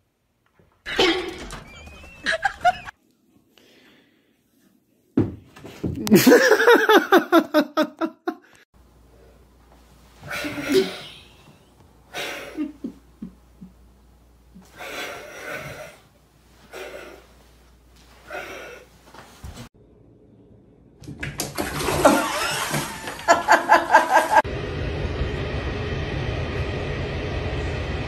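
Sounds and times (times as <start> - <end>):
person laughing hard: 0.9 - 2.9, 6.0 - 8.5, 10.3 - 11.4, 12.2 - 13.8, 21.9 - 24.4.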